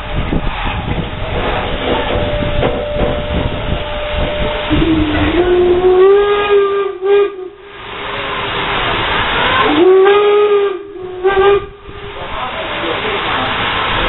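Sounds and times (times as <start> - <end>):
steam locomotive rumbling clatter: 0.0 - 14.0
steam whistle blast: 1.8 - 8.4, 9.2 - 11.9.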